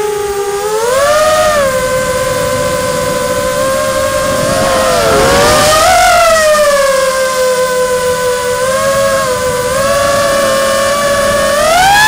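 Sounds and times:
drone propellers whining: 0:00.0 - 0:12.0
rush of air: 0:01.9 - 0:07.6.

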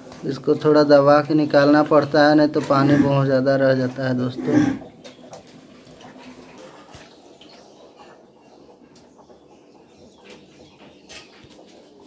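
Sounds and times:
water dripping and splashing: 0:04.9 - 0:08.2.

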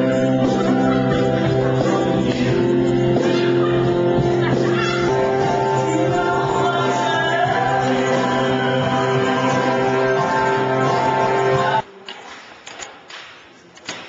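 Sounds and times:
singing over sustained chords: 0:05.0 - 0:11.8.

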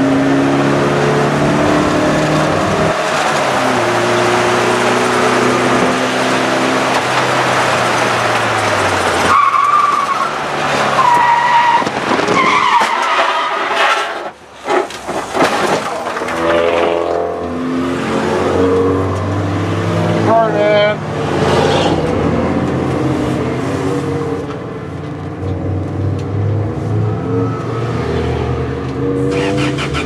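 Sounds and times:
race car engine: 0:00.0 - 0:30.0
tires squealing: 0:02.2 - 0:19.3, 0:26.8 - 0:30.0.

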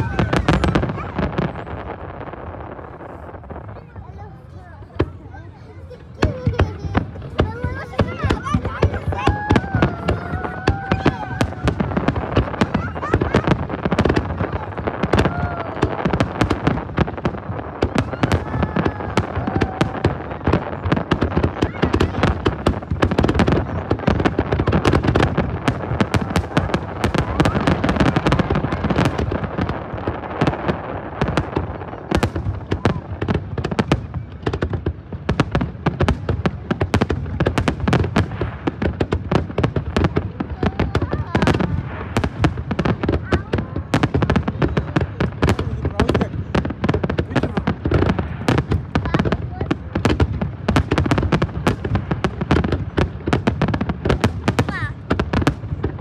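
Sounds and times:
fireworks bangs and crackles: 0:00.0 - 0:56.0.

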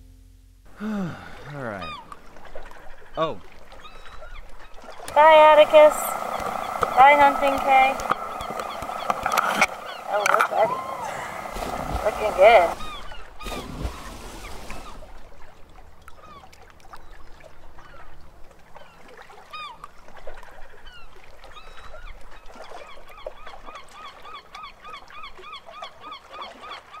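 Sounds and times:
birds honking calls: 0:01.3 - 0:15.0.

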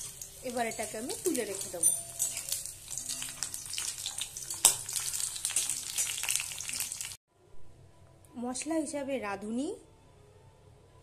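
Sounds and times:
spatula working in pan: 0:00.0 - 0:07.1
vegetable slices sizzling in oil: 0:00.0 - 0:07.2.

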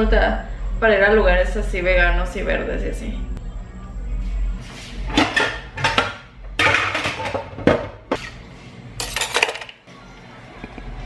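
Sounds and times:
dishes clattering in a metal sink: 0:05.1 - 0:08.3, 0:09.0 - 0:09.8.

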